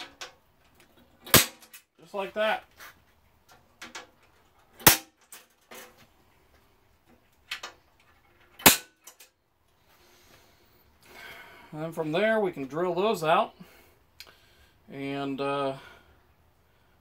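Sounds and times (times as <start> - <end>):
center punch snapping: 8.6 - 9.0.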